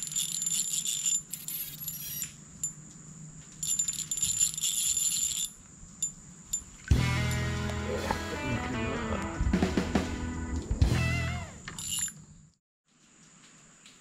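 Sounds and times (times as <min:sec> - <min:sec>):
music with guitar and drums: 0:06.9 - 0:11.6.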